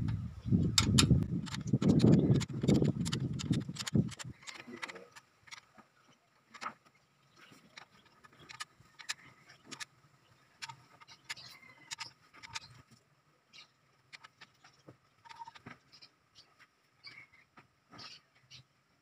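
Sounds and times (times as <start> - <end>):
metallic clicks of a wrench: 0.8 - 5.6.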